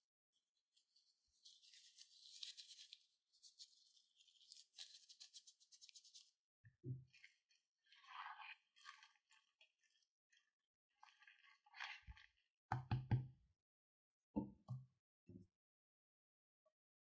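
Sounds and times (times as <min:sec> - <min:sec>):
spatula squishing foamy slime: 0:07.0 - 0:12.5.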